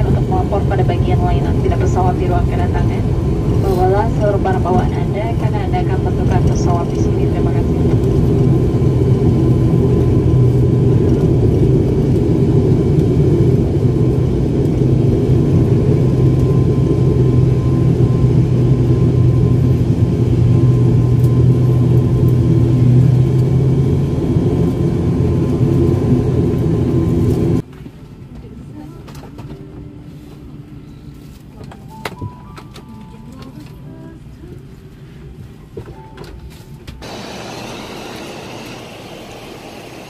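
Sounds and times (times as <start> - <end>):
turboprop engine drone in cabin: 0.0 - 31.7, 37.0 - 40.0
faint high whine: 37.0 - 40.0.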